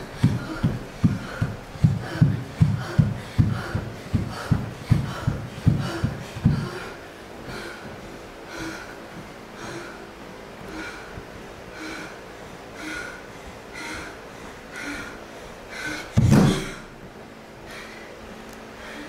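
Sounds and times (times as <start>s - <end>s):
woman breathing hard: 0.0s - 19.0s
feet landing on studio floor: 16.2s - 16.9s.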